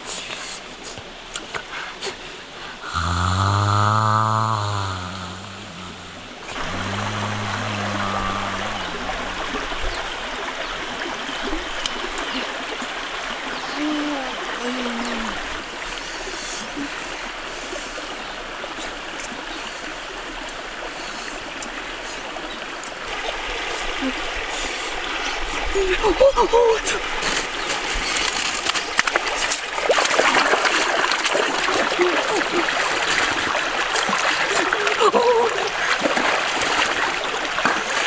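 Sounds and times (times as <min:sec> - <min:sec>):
stream flowing: 0:00.0 - 0:38.0
low hum: 0:02.9 - 0:10.4.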